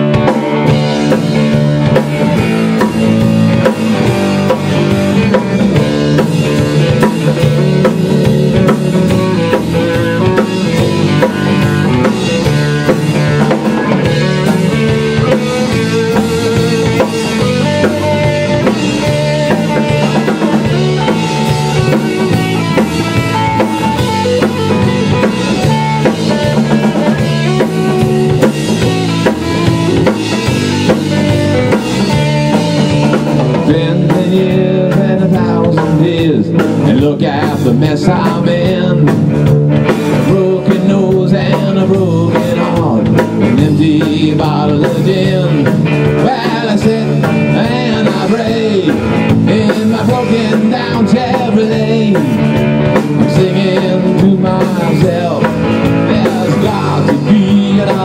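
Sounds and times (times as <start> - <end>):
bass guitar: 0.0 - 58.0
drum kit: 0.0 - 58.0
electric guitar: 0.0 - 58.0.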